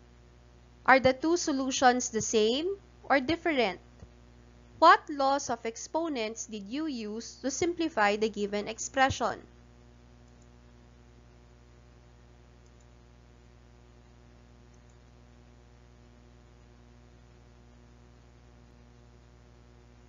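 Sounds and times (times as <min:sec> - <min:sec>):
electrical hum: 0:00.0 - 0:20.0
tiny ticks: 0:12.6 - 0:13.0, 0:14.7 - 0:15.2.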